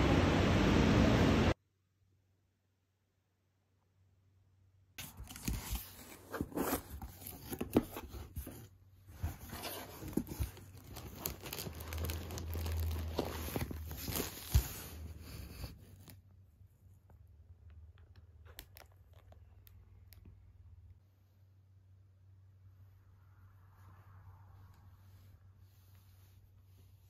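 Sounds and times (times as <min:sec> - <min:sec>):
plastic packaging crinkling: 0:09.2 - 0:15.1.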